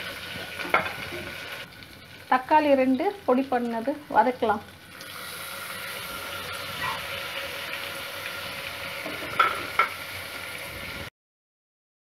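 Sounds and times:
tomatoes sizzling in oil: 0.0 - 11.1.

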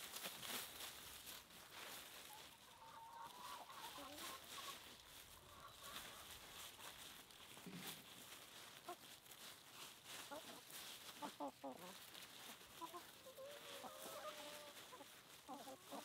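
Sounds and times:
chickens clucking: 0.1 - 16.0.

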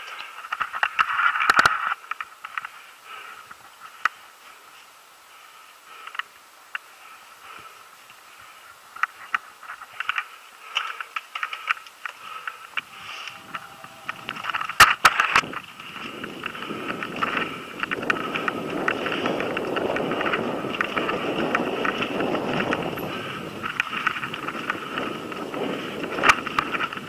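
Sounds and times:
bike rattling clicks and knocks: 0.0 - 2.8, 8.9 - 27.0
wind and tyre noise: 0.0 - 27.0.

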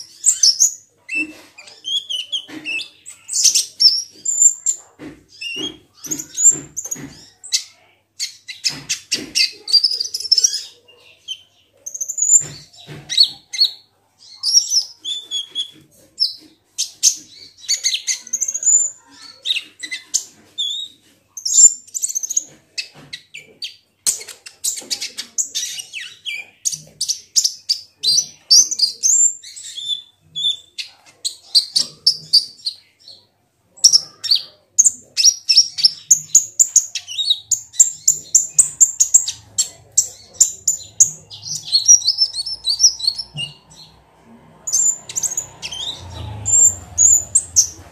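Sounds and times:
sunbird chirping and trilling: 33.8 - 44.0.

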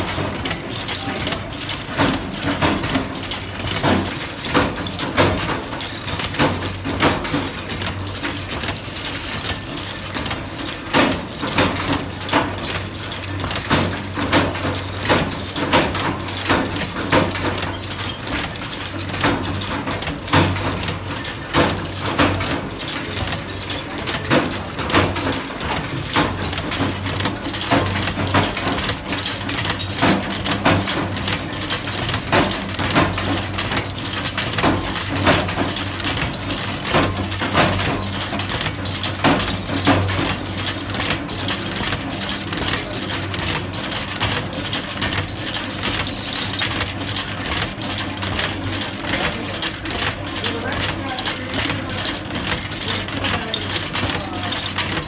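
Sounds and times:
punch press clicking and knocking: 0.0 - 55.0.

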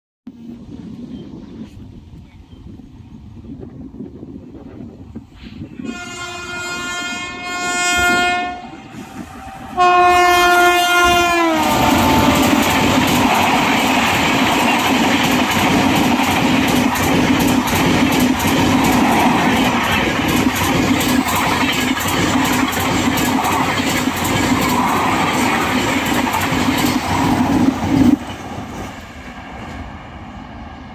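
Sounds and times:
train coaches roaring by: 0.4 - 30.9
locomotive horn blasts: 5.8 - 12.7
wheels clacking over rail joints: 11.8 - 29.0.

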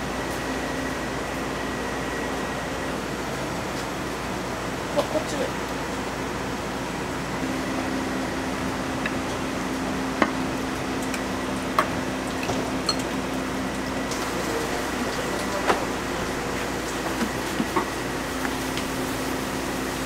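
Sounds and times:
utensils and dishes clinking: 12.4 - 13.2.

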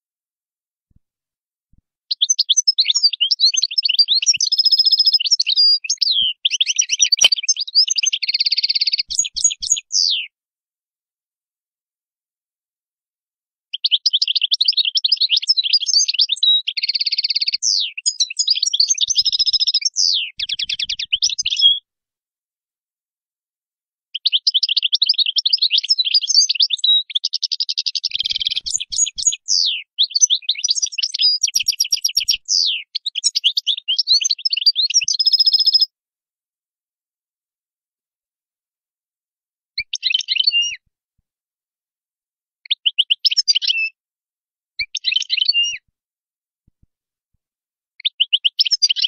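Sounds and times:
goldfinch twittering song: 2.1 - 10.3, 13.8 - 21.8, 24.2 - 35.9, 39.9 - 40.8, 44.9 - 45.6.

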